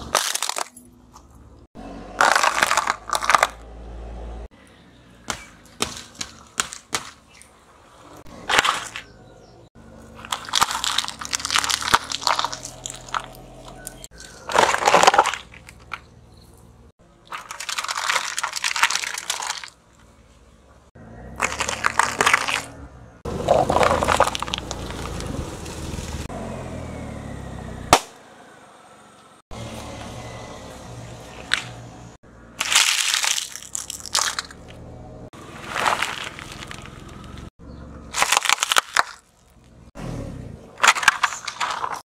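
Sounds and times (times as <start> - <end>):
car tyre crushing objects: 0.0 - 1.2, 2.2 - 3.7, 5.2 - 7.6, 8.2 - 9.2, 9.9 - 16.6, 17.2 - 20.1, 21.2 - 26.0, 27.9 - 28.2, 32.6 - 37.5, 38.1 - 42.0.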